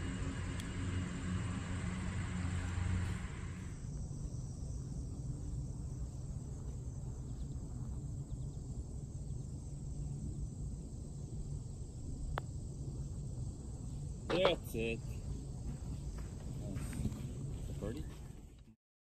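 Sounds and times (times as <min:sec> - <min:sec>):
broad rushing noise: 0:00.0 - 0:03.8
faint insect chirring: 0:00.0 - 0:16.4
low steady rumble: 0:00.0 - 0:18.8.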